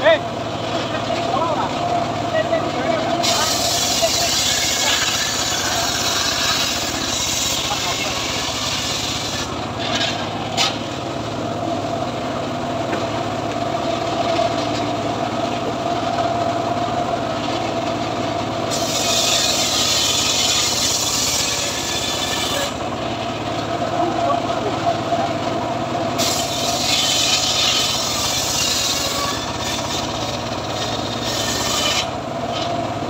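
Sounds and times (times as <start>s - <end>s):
circular saw whining: 0.9s - 33.0s
saw blade cutting through log: 2.9s - 11.1s, 18.7s - 24.0s, 26.1s - 32.9s.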